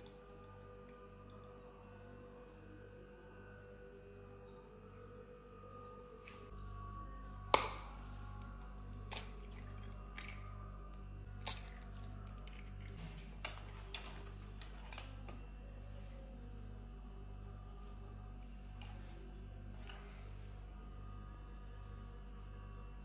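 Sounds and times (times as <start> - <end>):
faint low pulsing hum: 0.0 - 23.0
eggs cracking on steel bowl: 7.5 - 10.5, 11.3 - 15.4.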